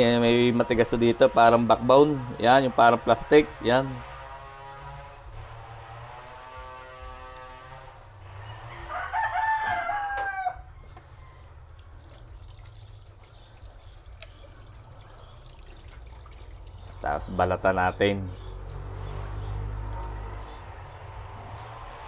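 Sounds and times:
rooster crowing: 8.3 - 11.6.

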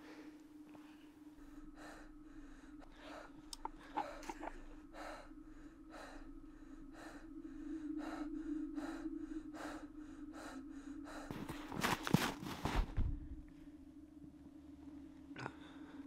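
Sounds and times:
steady low hum: 0.0 - 16.0
person gasping for breath: 1.4 - 12.6.

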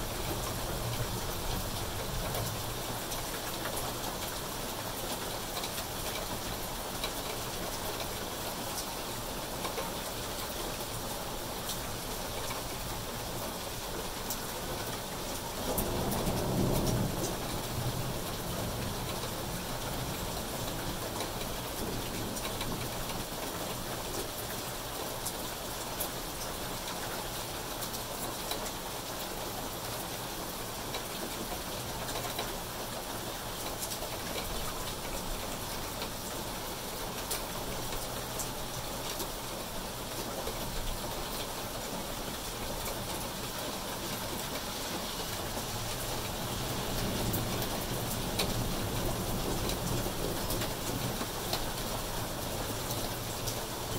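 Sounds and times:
rain falling on leaves and concrete: 0.0 - 53.9.

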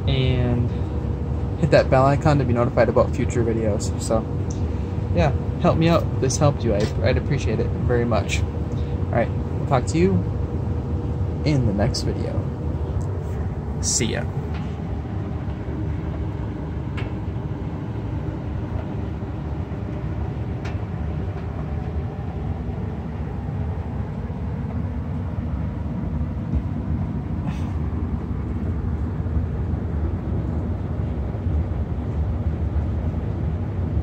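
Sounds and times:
gas furnace rumbling: 0.0 - 34.0.

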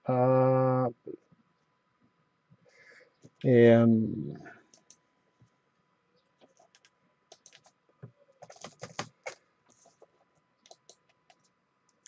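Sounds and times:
computer keyboard typing: 4.8 - 5.0, 6.5 - 7.8, 8.4 - 9.9, 10.6 - 12.0.

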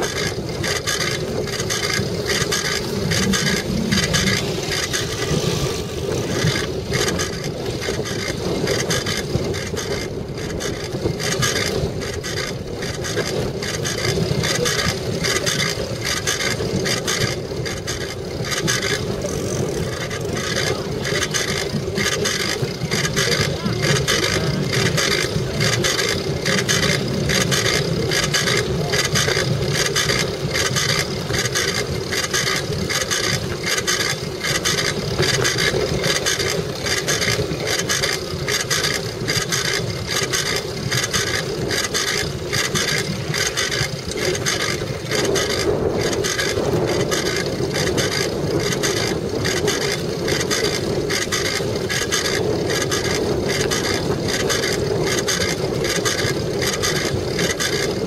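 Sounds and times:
rhythmic ticking: 0.0 - 5.4
wind buffeting camera: 0.0 - 58.0.

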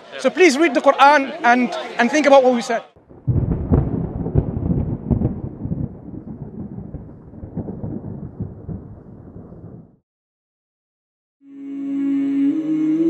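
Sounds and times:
low crackling rumble: 3.0 - 10.0.

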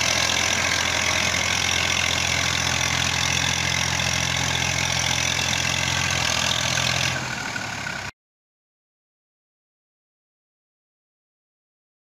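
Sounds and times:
tractor diesel engine running: 0.0 - 8.1.

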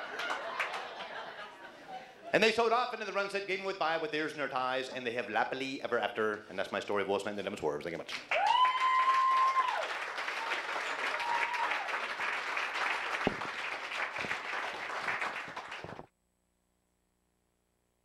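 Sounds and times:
audience applauding: 0.0 - 1.5, 8.2 - 16.1.

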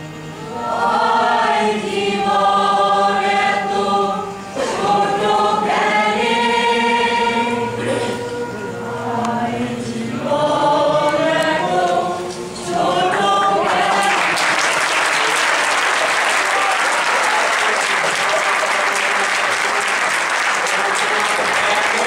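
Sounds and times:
choir singing: 0.0 - 22.0
audience applause: 13.6 - 22.0.

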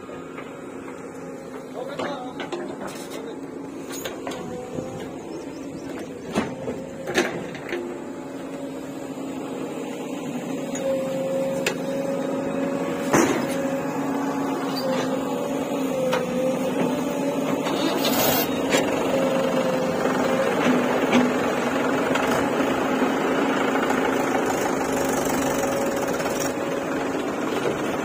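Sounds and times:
diesel engine idling: 0.0 - 28.0.

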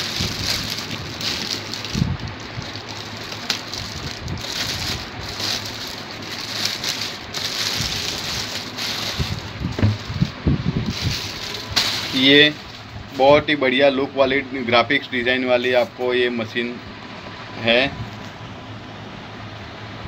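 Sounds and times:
plastic wrapping crinkling: 0.0 - 13.0
dull bumps: 9.1 - 12.1.

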